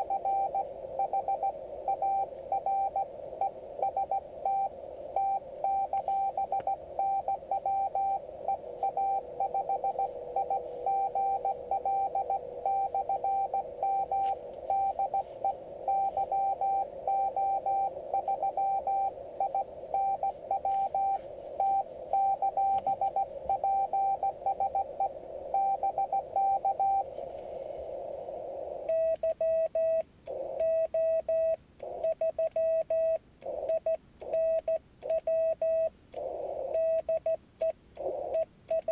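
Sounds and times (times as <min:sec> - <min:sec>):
morse code tone: 0:00.0 - 0:27.1
lower keyed sidetone: 0:00.0 - 0:27.2
radio hiss: 0:00.0 - 0:29.2, 0:36.2 - 0:37.0, 0:38.0 - 0:38.4.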